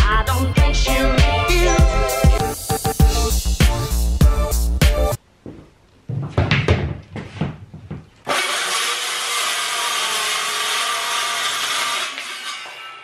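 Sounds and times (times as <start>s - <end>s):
board knocking: 5.4s - 8.2s
circular saw cutting board: 8.3s - 13.0s.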